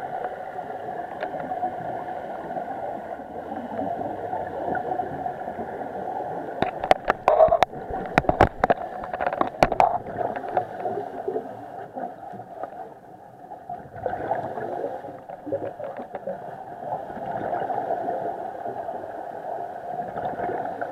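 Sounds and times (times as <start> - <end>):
muffled underwater bubbling: 0.0 - 20.9
sharp clicks and knocks: 6.6 - 10.8.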